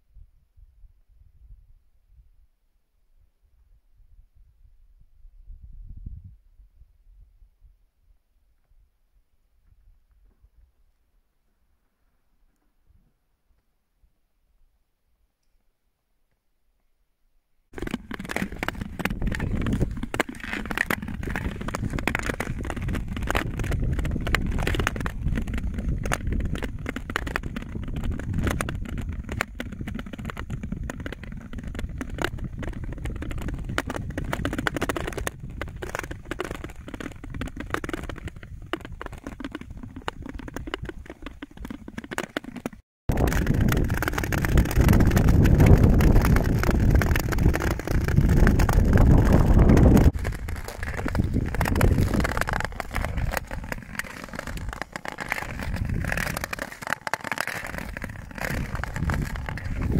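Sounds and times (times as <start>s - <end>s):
wind rumble on microphone: 0.0s - 2.5s, 3.4s - 8.9s, 17.8s - 41.7s, 43.1s - 56.6s, 57.7s - 59.9s
ice cracking and clicking: 17.8s - 59.9s
ice skate blades scraping: 17.8s - 59.9s.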